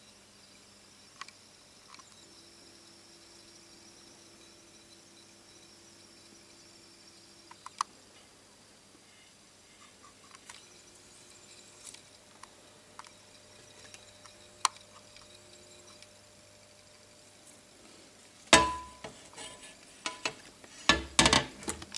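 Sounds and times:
low steady hum: 0:00.9 - 0:21.9
faint clicks and ticks: 0:07.5 - 0:07.9.

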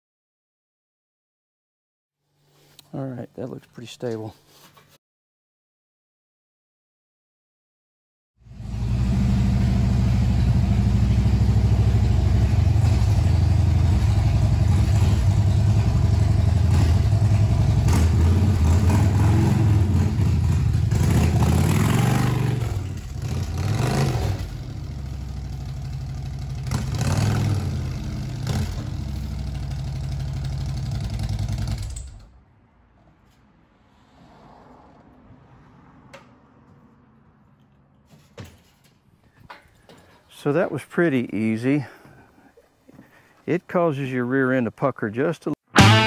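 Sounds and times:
motorcycle engine rumbling: 0:08.5 - 0:43.2.

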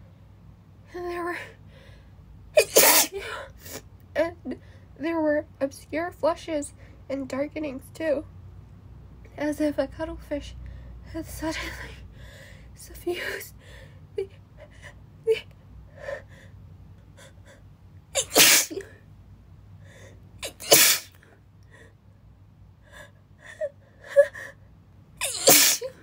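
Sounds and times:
woman sneezing: 0:02.6 - 0:03.8, 0:18.2 - 0:18.9, 0:20.4 - 0:21.2, 0:25.2 - 0:26.0
catching breaths: 0:12.1 - 0:12.8.

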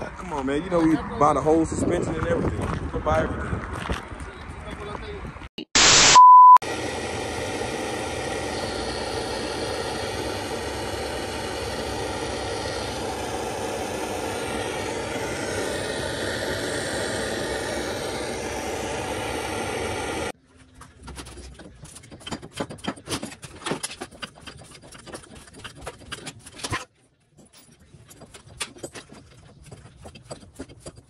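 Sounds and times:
vehicle engine and road noise: 0:00.0 - 0:05.5.

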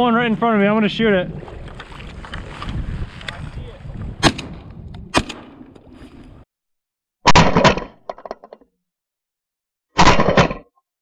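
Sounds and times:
faint wind noise: 0:00.0 - 0:05.3
shotgun blast: 0:04.2 - 0:05.6.

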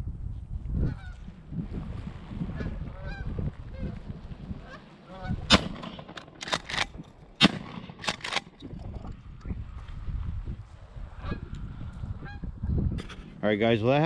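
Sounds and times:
geese honking overhead: 0:02.5 - 0:06.2, 0:11.2 - 0:11.5
shotgun blasts: 0:05.5 - 0:08.6.

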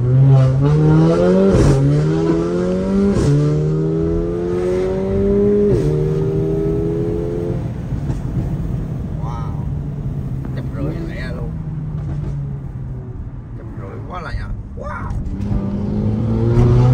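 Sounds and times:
car engine accelerating: 0:00.0 - 0:16.9
gearshift exhaust crack: 0:07.6 - 0:16.9.

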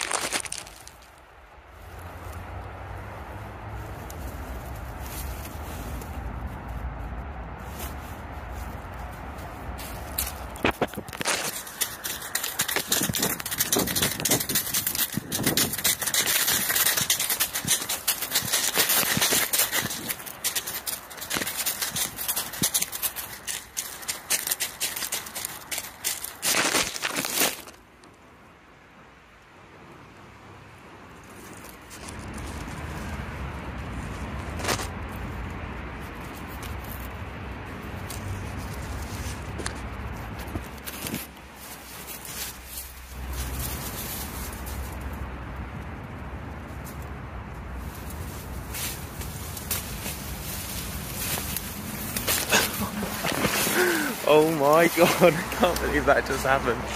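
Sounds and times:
leaf litter crackling: 0:00.0 - 0:02.4, 0:03.7 - 0:27.8, 0:38.0 - 0:45.3, 0:47.7 - 0:56.9
close rustling: 0:00.0 - 0:28.0, 0:31.1 - 0:56.9
fur rubbing on microphone: 0:03.7 - 0:27.6, 0:47.8 - 0:56.9.

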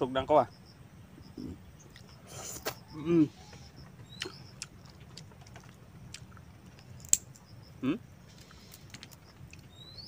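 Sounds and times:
shell cracking: 0:05.0 - 0:07.5
shellfish shells clicking: 0:05.4 - 0:07.4.

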